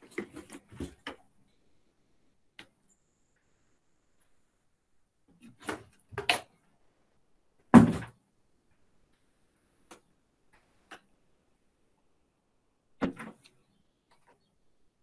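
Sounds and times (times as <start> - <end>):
loud thud: 7.8 - 8.1.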